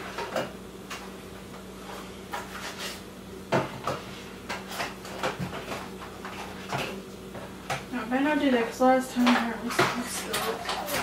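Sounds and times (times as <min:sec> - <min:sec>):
groceries knocking and clattering: 0:02.3 - 0:07.9, 0:09.1 - 0:11.0.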